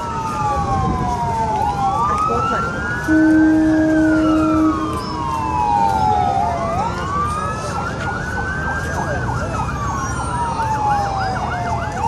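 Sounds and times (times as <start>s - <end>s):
emergency siren wailing: 0.0s - 12.0s
horn blast: 3.1s - 4.8s.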